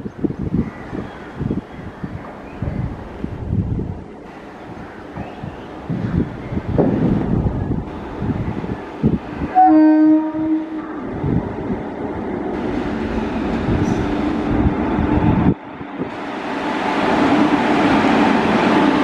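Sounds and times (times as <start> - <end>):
freight train rumbling and clattering: 0.0 - 19.0
locomotive horn blast: 9.5 - 11.0.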